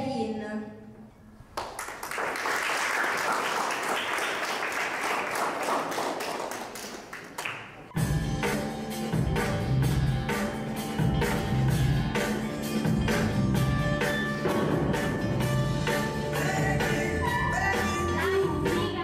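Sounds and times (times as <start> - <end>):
audience clapping: 1.5 - 8.0.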